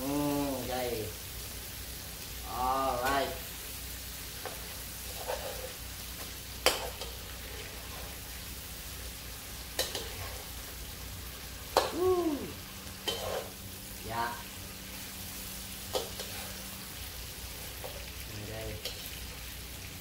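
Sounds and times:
food sizzling in a wok: 0:00.0 - 0:20.0
metal spatula scraping pan: 0:04.4 - 0:05.8, 0:09.8 - 0:10.5, 0:13.0 - 0:13.6, 0:15.8 - 0:16.8.

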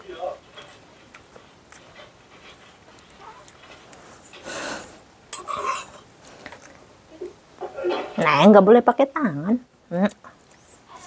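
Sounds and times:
breathy puff of breath: 0:04.4 - 0:05.0.

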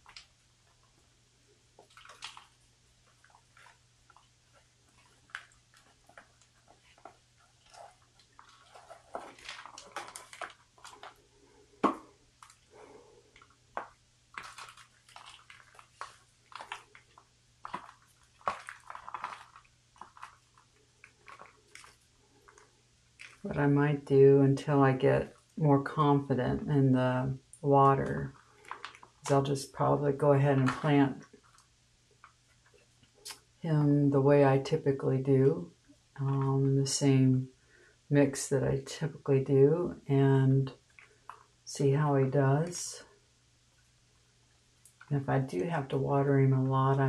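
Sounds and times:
soil crumbling: 0:01.7 - 0:23.6, 0:27.8 - 0:29.9
plant pulled from plastic pot: 0:04.9 - 0:11.2, 0:13.4 - 0:22.6.

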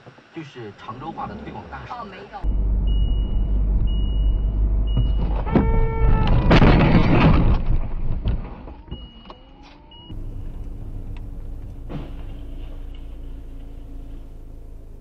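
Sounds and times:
road and engine rumble: 0:00.0 - 0:15.0
electronic warning beep: 0:02.4 - 0:06.0, 0:08.8 - 0:10.7
low engine hum: 0:02.4 - 0:06.4, 0:10.1 - 0:15.0
loud rough crash: 0:06.1 - 0:08.6, 0:11.8 - 0:12.9.

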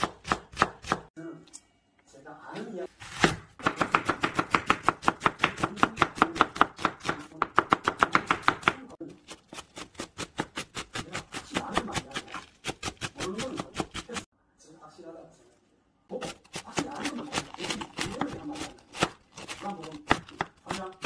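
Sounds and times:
knife chopping on wooden board: 0:00.0 - 0:01.1, 0:03.0 - 0:14.2, 0:16.2 - 0:21.0.

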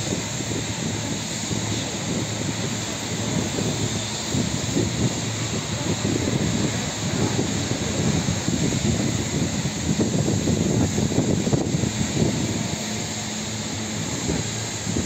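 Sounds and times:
train hiss: 0:00.0 - 0:15.0
train wheels rumbling on rails: 0:00.0 - 0:15.0.

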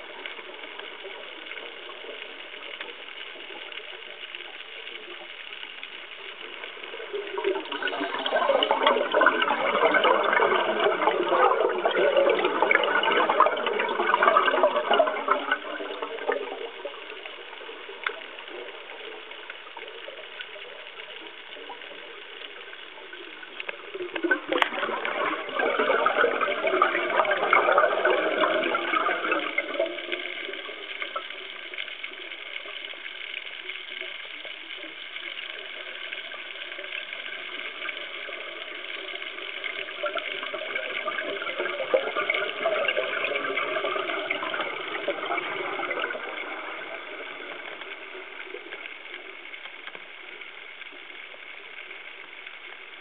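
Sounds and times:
faint steady hiss: 0:00.0 - 0:53.0
underwater exhaled bubbles gurgling: 0:00.0 - 0:53.0.

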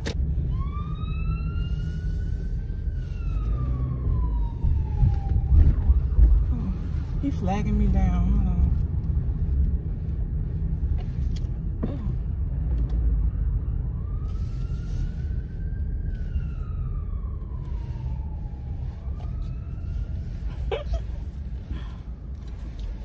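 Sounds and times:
low rumble inside car: 0:00.0 - 0:23.0
siren wailing: 0:00.4 - 0:07.1, 0:13.3 - 0:21.1.

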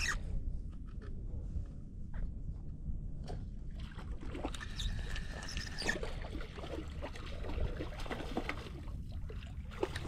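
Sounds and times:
wind rumbling on microphone: 0:00.0 - 0:10.0.

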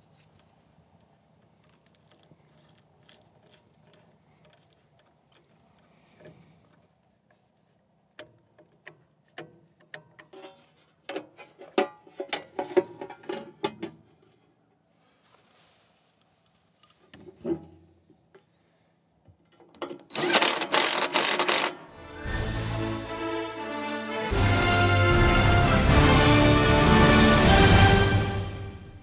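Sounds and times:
cordless drill driving screw: 0:20.1 - 0:21.8.

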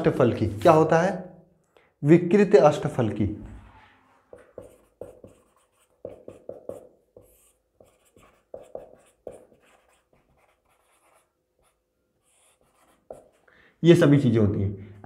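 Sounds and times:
marker writing on whiteboard: 0:04.1 - 0:13.5.

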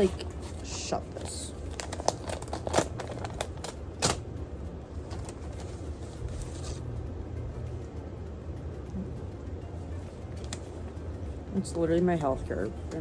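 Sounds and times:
paper crinkling and rustling: 0:00.0 - 0:04.2, 0:05.0 - 0:06.9
low steady hum: 0:00.0 - 0:13.0.

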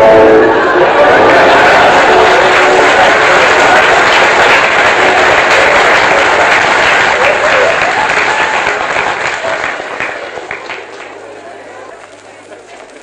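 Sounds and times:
theatre audience applauding: 0:00.0 - 0:13.0.

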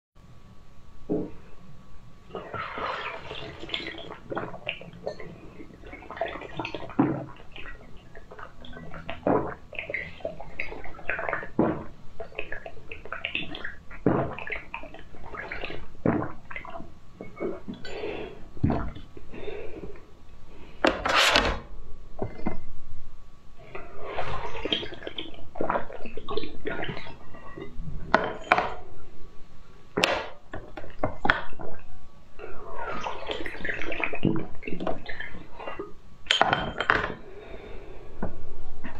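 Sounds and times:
slurping through tubes: 0:02.3 - 0:05.0, 0:05.6 - 0:17.9.

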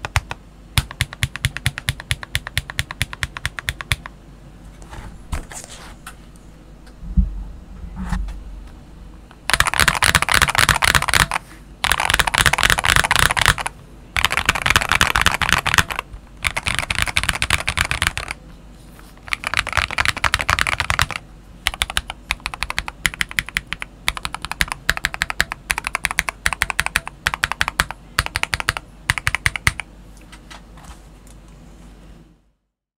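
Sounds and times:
mechanical keyboard typing: 0:00.0 - 0:04.1, 0:09.5 - 0:18.4, 0:19.2 - 0:29.9.

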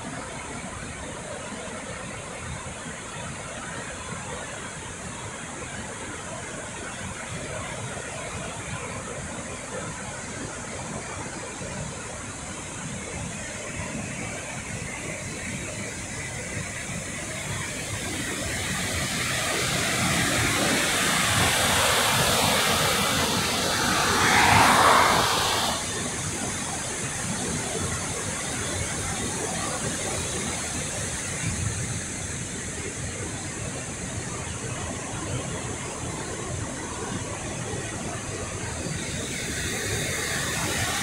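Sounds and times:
waterfall roaring: 0:17.2 - 0:26.0.

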